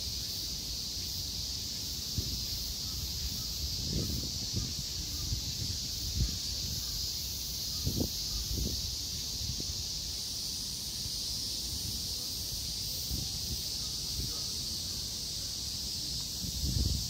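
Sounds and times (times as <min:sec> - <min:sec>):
high-pitched hiss: 0:00.0 - 0:17.0
wind rumbling on microphone: 0:02.0 - 0:07.1, 0:07.7 - 0:09.9, 0:16.1 - 0:17.0.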